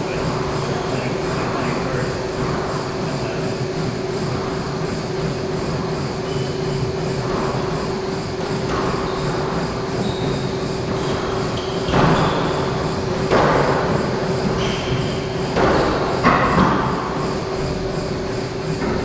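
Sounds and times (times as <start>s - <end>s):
shoes squeaking on floor: 6.2s - 6.8s, 8.8s - 12.9s, 14.4s - 15.4s
squash ball hits echoing: 10.9s - 17.0s.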